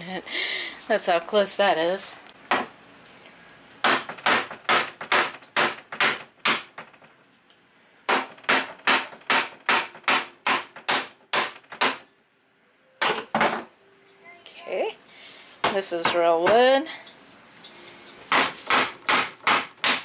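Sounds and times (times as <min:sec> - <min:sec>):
hammer striking wood: 0:03.8 - 0:07.0, 0:08.1 - 0:12.1, 0:18.3 - 0:20.0.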